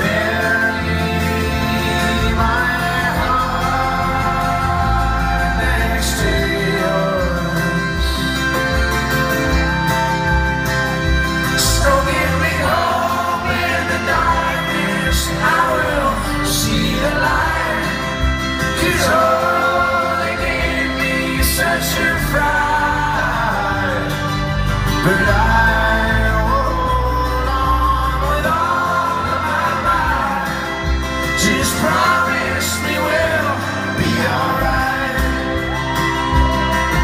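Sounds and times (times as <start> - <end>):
acoustic guitar: 0.0 - 37.0
electric guitar: 0.0 - 37.0
upright double bass: 0.0 - 37.0.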